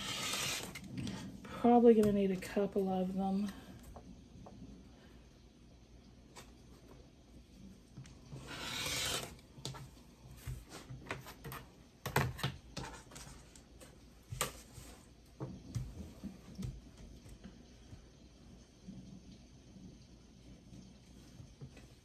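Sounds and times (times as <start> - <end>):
rotary cutter scraping through fabric: 0.0 - 0.9, 8.3 - 9.4.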